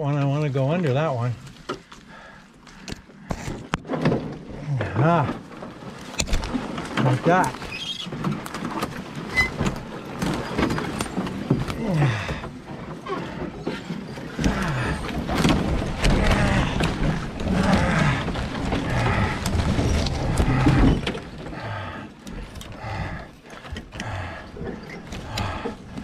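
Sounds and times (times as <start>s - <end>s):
branches scraping: 1.2s - 26.0s
man breathing heavily: 1.8s - 3.7s, 11.6s - 26.0s
man grunting: 11.8s - 12.4s.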